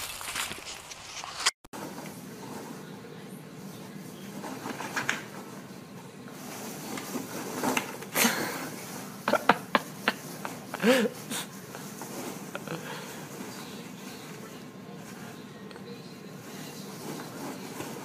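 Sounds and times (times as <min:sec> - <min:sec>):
foam packing peanuts crackling: 0:00.0 - 0:02.9.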